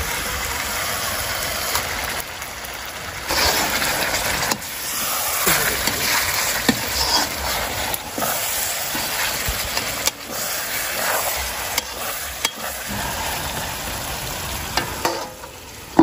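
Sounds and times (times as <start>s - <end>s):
curry sizzling in a pan: 0.0s - 16.0s
metal ladle stirring: 5.7s - 12.8s
ladle clicking against pan: 11.7s - 12.7s.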